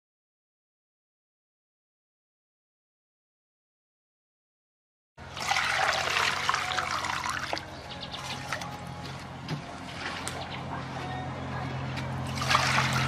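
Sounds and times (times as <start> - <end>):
water pouring into a steel pot: 5.3 - 7.6.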